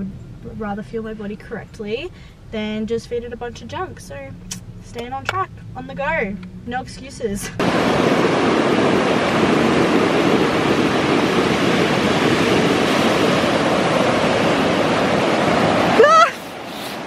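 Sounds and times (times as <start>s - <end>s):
ocean surf breaking: 7.5s - 17.0s.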